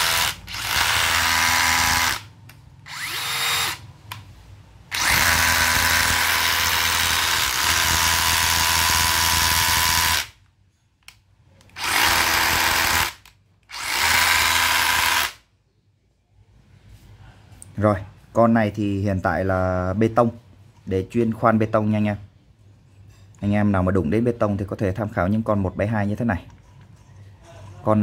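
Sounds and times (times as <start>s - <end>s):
rotary hammer running: 0.0s - 2.3s, 4.9s - 10.3s, 11.8s - 15.4s.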